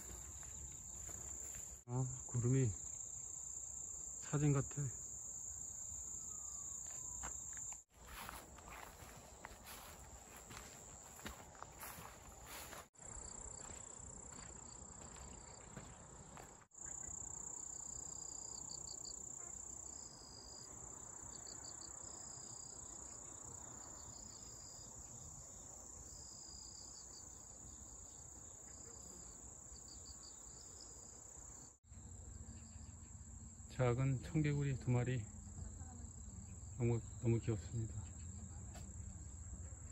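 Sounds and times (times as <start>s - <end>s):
insects trilling: 0.0s - 38.2s
pulsed cricket chirps: 0.0s - 39.8s.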